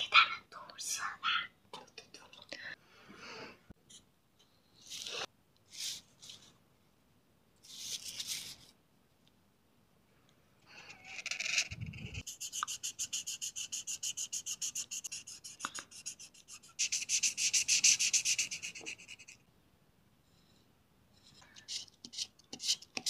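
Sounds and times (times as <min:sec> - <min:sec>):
marker scribbling on paper: 0:11.2 - 0:19.4, 0:21.6 - 0:23.0.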